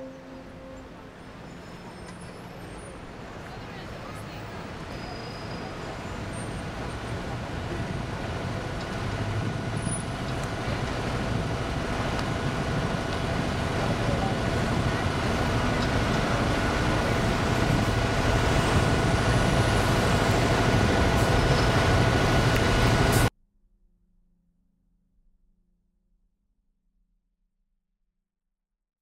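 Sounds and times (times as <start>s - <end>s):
faint steady high tone: 0.0s - 3.1s
city traffic noise: 0.0s - 23.3s.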